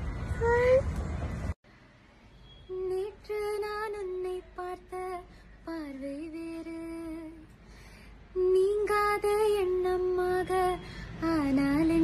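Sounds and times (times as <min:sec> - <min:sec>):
woman singing: 0:02.7 - 0:07.4, 0:08.4 - 0:12.0.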